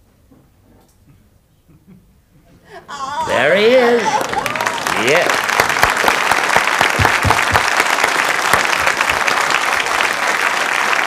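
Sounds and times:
audience applauding: 0:03.3 - 0:11.0.

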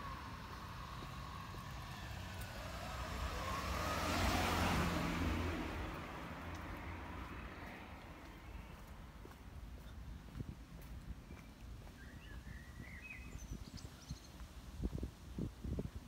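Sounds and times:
car driving past: 0:00.0 - 0:08.9.

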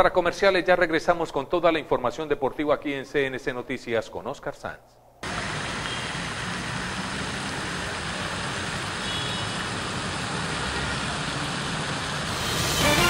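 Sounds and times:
street traffic noise: 0:05.2 - 0:13.0.

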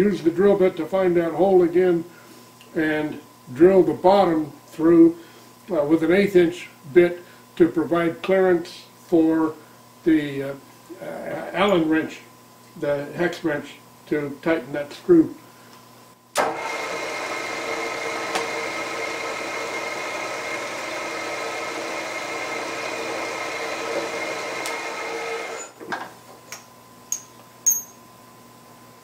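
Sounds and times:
milling machine spindle whine: 0:16.4 - 0:25.8.

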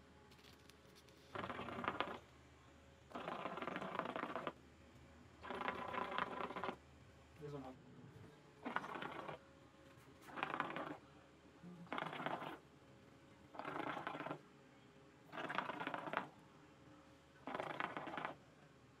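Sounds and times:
hookah water bubbling: 0:01.3 - 0:02.2, 0:03.1 - 0:04.6, 0:05.4 - 0:06.8, 0:08.6 - 0:09.4, 0:10.3 - 0:11.0, 0:11.8 - 0:12.6, 0:13.5 - 0:14.4, 0:15.3 - 0:16.4, 0:17.4 - 0:18.4.

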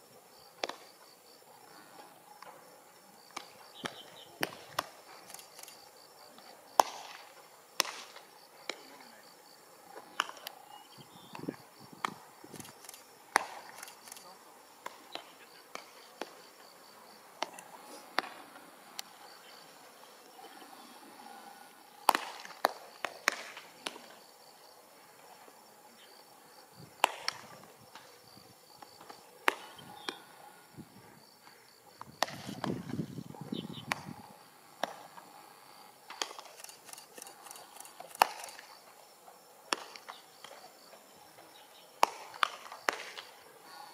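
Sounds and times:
faint insect chirring: 0:00.0 - 0:43.9
baseballs smacking into gloves: 0:00.6 - 0:00.8, 0:06.8 - 0:07.2, 0:07.8 - 0:08.9, 0:10.2 - 0:10.5, 0:11.3 - 0:12.2, 0:17.4 - 0:18.4, 0:22.1 - 0:24.1, 0:32.0 - 0:33.0, 0:42.0 - 0:43.3.

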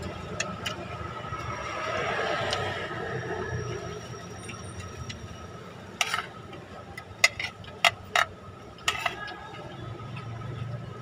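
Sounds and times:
spoon scraping a ceramic plate: 0:06.0 - 0:06.4.

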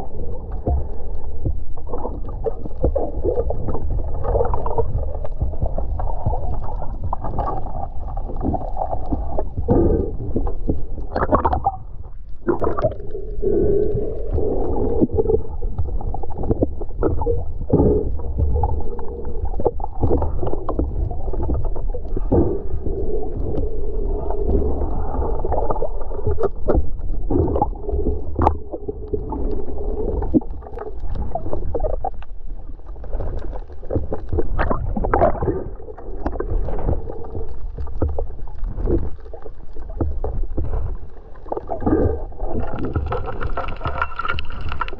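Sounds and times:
underwater clicks and knocks: 0:00.0 - 0:13.1, 0:13.8 - 0:44.9
underwater rumbling wash: 0:00.0 - 0:44.9.

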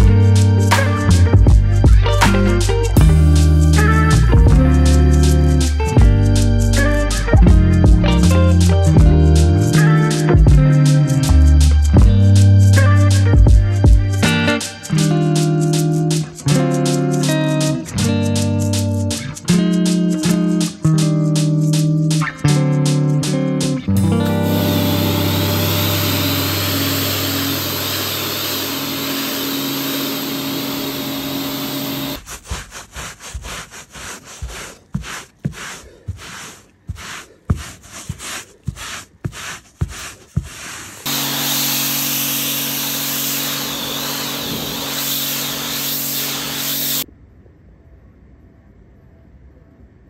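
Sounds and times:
pressure washer motor hum: 0:24.0 - 0:32.2, 0:41.1 - 0:47.0
pressure washer water jet hissing: 0:24.1 - 0:47.0
rubbing strokes on carpet: 0:24.3 - 0:47.0.

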